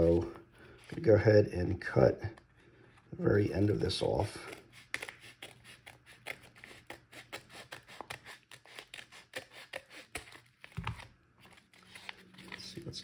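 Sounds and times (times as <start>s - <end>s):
scissors snipping envelope: 4.3s - 12.9s.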